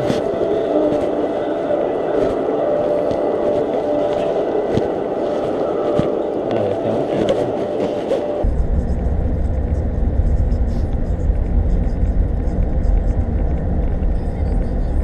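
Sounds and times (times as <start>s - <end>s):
steady rumbling hum: 0.0s - 15.0s
scattered clicks and taps: 2.1s - 8.4s.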